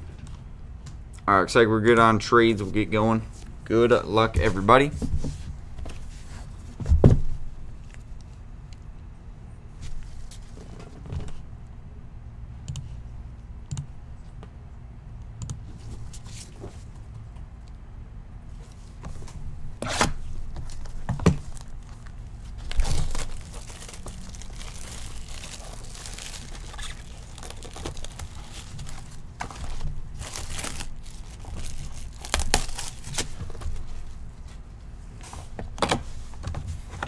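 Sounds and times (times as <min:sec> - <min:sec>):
shrink wrap crinkling and ripping: 0:20.6 - 0:34.0.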